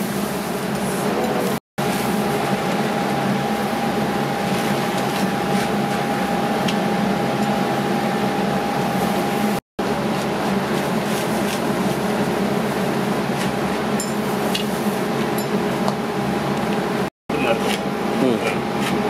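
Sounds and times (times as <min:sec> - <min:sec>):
machine running with whine: 0:01.0 - 0:11.0.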